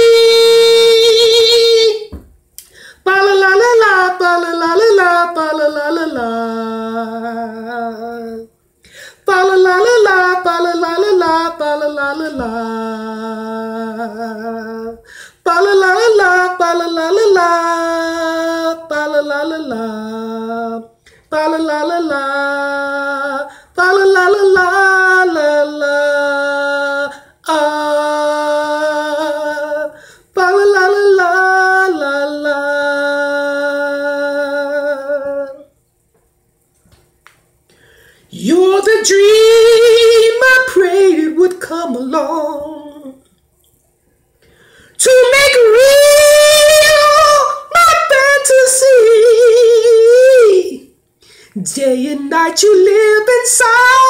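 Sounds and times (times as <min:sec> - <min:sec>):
man singing solo: 0:00.0 - 0:02.2, 0:45.0 - 0:50.9, 0:51.6 - 0:54.0
breaths: 0:02.6 - 0:03.1, 0:08.8 - 0:09.3, 0:15.0 - 0:15.4, 0:23.5 - 0:23.8, 0:30.0 - 0:30.3, 0:37.7 - 0:38.4, 0:44.4 - 0:45.0, 0:51.2 - 0:51.6.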